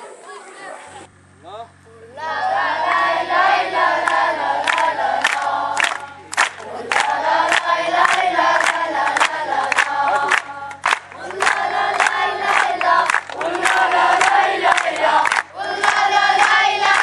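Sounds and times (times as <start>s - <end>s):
children chanting in unison: 2.1s - 17.0s
rhythmic hand claps: 3.8s - 17.0s.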